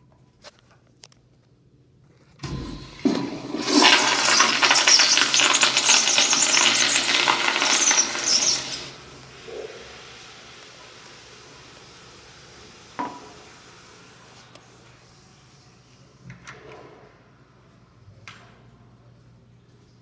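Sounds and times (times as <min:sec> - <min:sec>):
flush valve thump: 0:02.4 - 0:08.8
toilet water rushing: 0:02.4 - 0:14.4.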